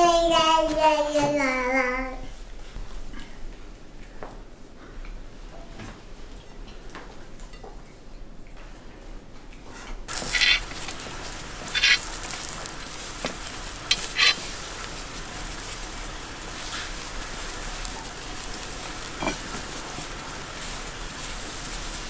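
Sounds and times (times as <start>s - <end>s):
meat sizzling over charcoal: 10.1s - 22.0s
sharp crackles and pops: 10.1s - 22.0s.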